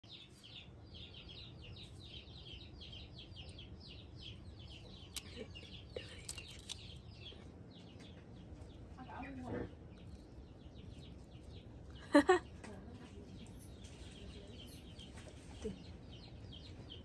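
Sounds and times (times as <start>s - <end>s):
birds chirping rapidly: 0.0s - 17.0s
sharp clicks: 6.0s - 7.1s.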